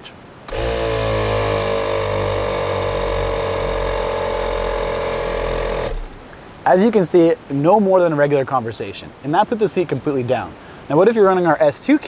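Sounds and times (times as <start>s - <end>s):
air compressor motor hum: 0.5s - 6.2s.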